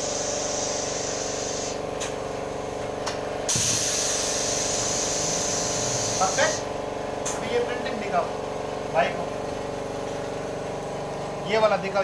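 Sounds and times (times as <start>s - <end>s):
air hissing: 0.0s - 1.8s, 3.5s - 7.4s
machine mechanical hum: 0.0s - 12.0s
rush of air from cylinders: 3.5s - 6.7s.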